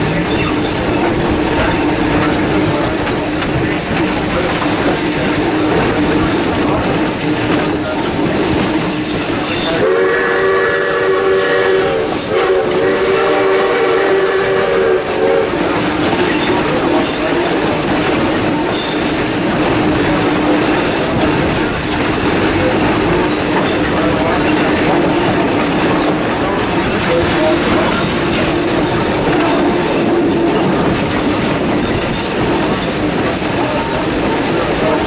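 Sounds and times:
train rumble and clatter: 0.0s - 35.0s
steam locomotive whistle: 9.4s - 17.4s.

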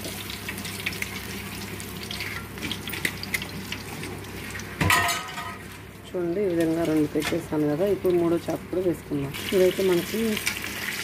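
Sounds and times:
oil sizzling in a pan: 0.0s - 5.8s, 9.3s - 11.0s.

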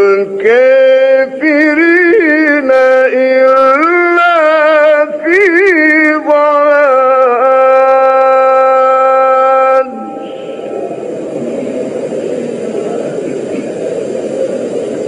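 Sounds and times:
man reciting melodically: 0.0s - 10.7s.

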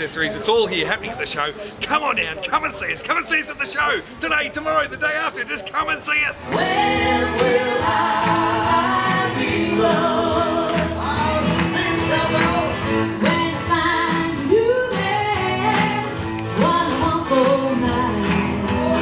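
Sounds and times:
song with singing: 6.4s - 19.0s.

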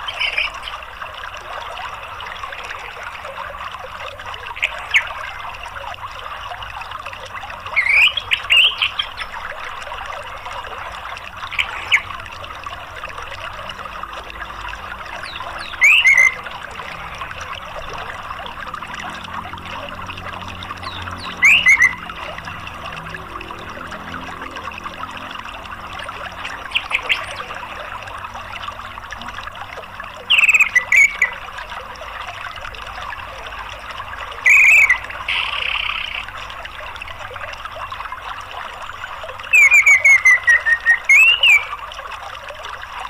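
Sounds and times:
thrush calling: 0.0s - 0.9s, 7.7s - 9.4s, 11.4s - 12.2s, 15.0s - 17.5s, 20.8s - 22.4s, 25.9s - 28.0s, 30.3s - 31.5s, 34.4s - 36.5s, 39.5s - 41.8s
flowing water: 0.0s - 43.0s.

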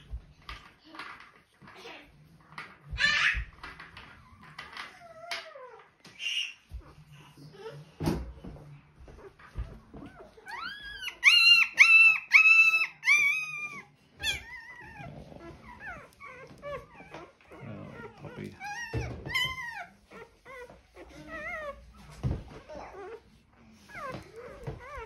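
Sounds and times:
puppy yelping and whimpering: 2.9s - 7.8s, 9.0s - 25.0s
puppy squealing: 10.0s - 25.0s.

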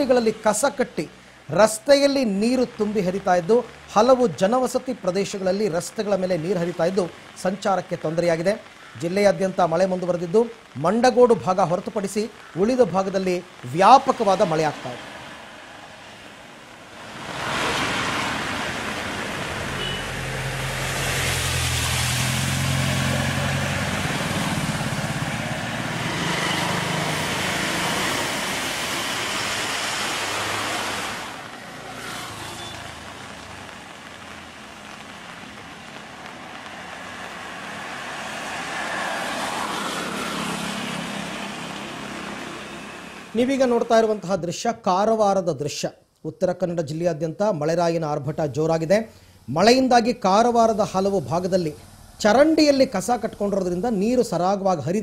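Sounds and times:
tyres splashing through water: 1.6s - 44.1s
vehicle engine hum: 15.0s - 43.9s.

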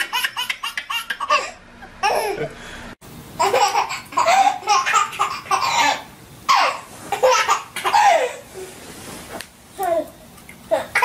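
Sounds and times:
baby laughing: 0.0s - 2.5s, 3.4s - 8.4s.

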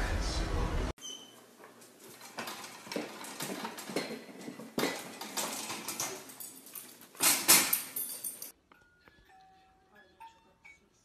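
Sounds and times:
metal clatter: 2.0s - 8.5s
metal baby gate rattling: 2.1s - 8.5s.

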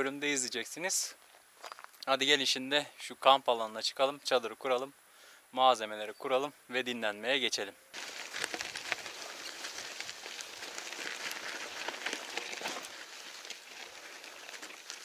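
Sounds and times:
bicycle tyres rolling over gravel: 8.0s - 15.0s.

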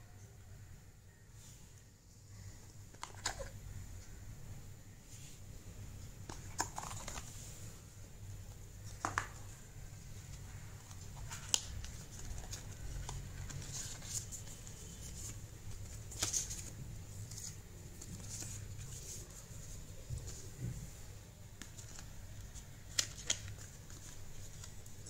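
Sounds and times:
cardboard and paper rustling: 6.3s - 7.6s, 8.8s - 20.9s.

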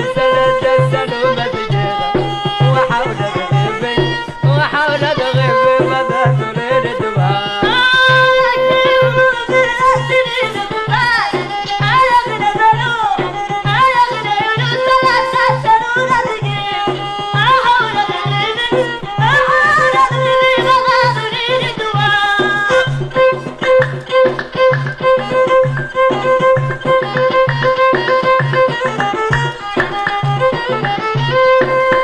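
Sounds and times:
person singing: 0.0s - 24.6s
hand drum beat: 0.0s - 32.0s.

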